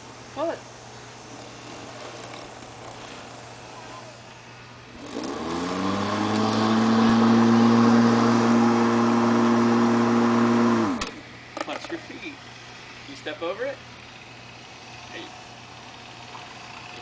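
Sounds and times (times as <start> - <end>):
electric lawn mower motor humming: 1.2 - 11.2, 14.0 - 17.0.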